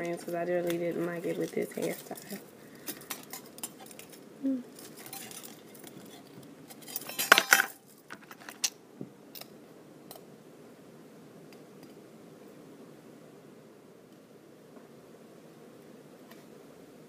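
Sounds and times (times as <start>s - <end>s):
metal earrings clinking: 1.0s - 8.7s.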